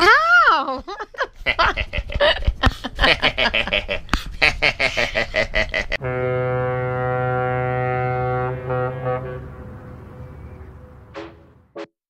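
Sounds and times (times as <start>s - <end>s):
person laughing: 0.0s - 6.0s
low brassy horn note: 6.0s - 11.9s.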